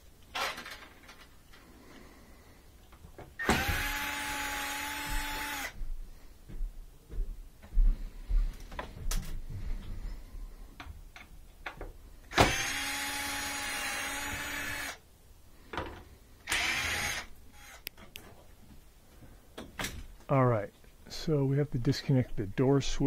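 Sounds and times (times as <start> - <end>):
cordless drill whining: 3.4 - 5.8, 12.3 - 15.0, 16.4 - 18.0.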